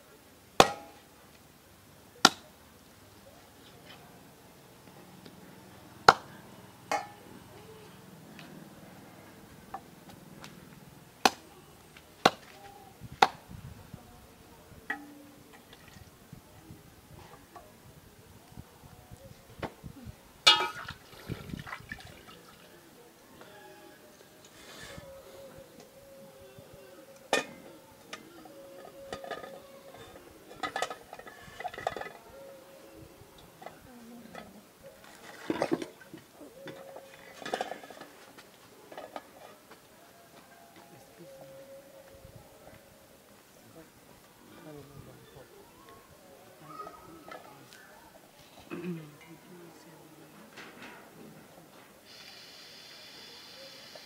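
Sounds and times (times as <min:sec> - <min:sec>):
metal pots and wok clinking: 0:06.9 - 0:07.2, 0:20.5 - 0:20.9.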